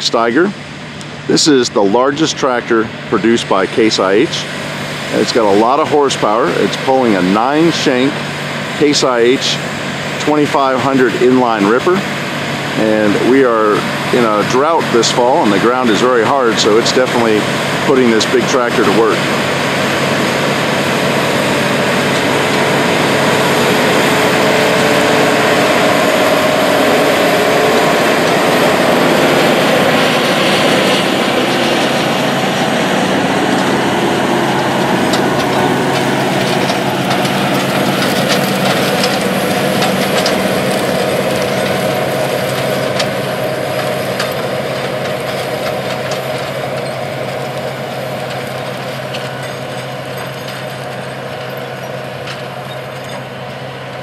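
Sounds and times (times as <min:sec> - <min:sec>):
diesel tractor engine under load: 0:00.0 - 0:54.0
clicks and rattles: 0:34.8 - 0:53.2.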